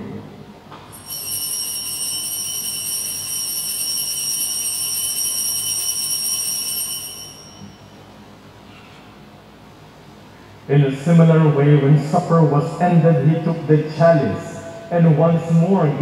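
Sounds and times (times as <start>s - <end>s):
altar bells ringing: 0.9s - 8.1s.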